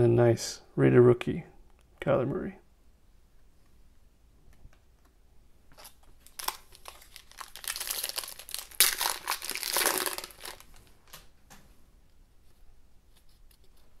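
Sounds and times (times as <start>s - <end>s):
foil wrapper crinkling: 5.7s - 11.2s
foil ripping: 5.8s - 10.7s.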